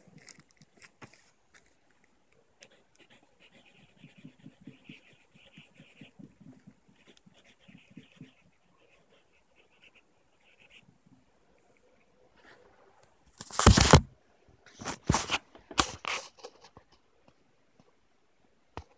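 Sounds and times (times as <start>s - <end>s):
pencil scratching on paper: 2.6s - 10.8s.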